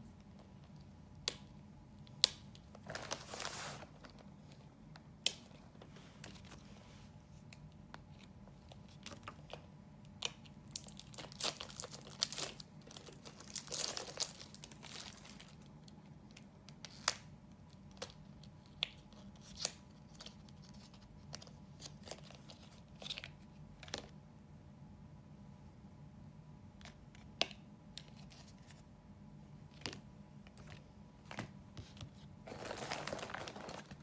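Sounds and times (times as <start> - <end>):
faint low hum: 0.0 - 34.0
packaging tearing and crinkling: 10.7 - 15.6, 32.5 - 34.0.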